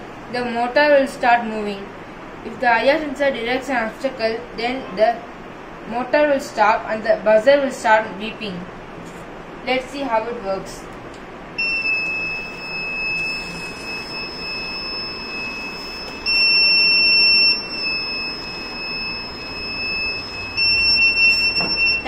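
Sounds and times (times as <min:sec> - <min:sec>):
high-pitched buzzer tone: 0:11.6 - 0:22.0.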